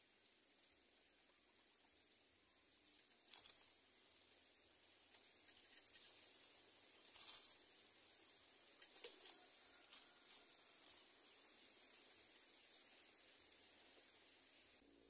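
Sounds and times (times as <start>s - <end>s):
nestlings scratching in dry leaves: 2.7s - 14.4s.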